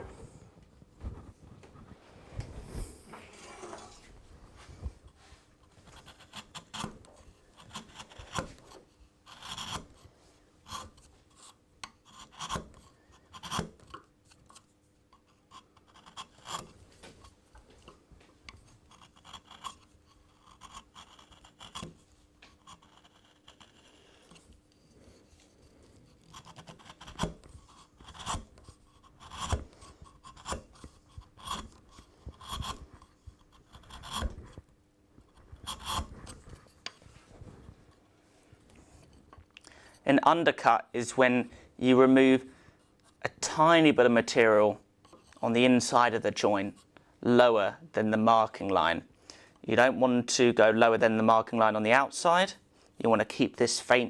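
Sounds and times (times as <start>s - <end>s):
chisel scraping wood: 3.3s - 4.1s, 5.1s - 37.2s, 38.7s - 39.4s, 44.3s - 46.0s.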